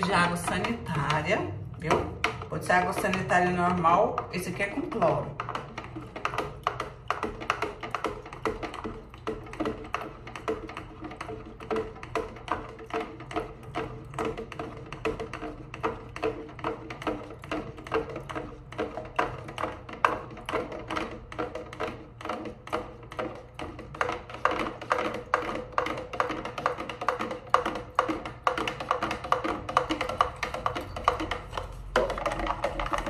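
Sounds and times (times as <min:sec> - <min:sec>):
music with wood-block beat: 0:00.0 - 0:33.0.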